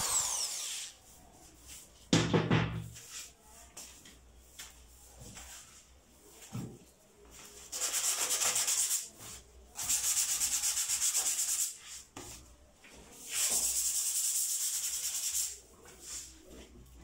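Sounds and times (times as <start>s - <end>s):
sandpaper rubbing on wood: 7.7s - 9.2s, 9.8s - 12.0s, 13.3s - 16.2s.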